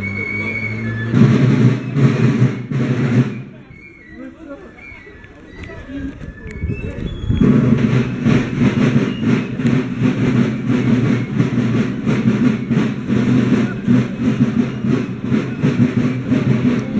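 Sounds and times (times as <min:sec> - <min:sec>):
marching drums beating: 0:00.7 - 0:04.4, 0:07.1 - 0:16.9.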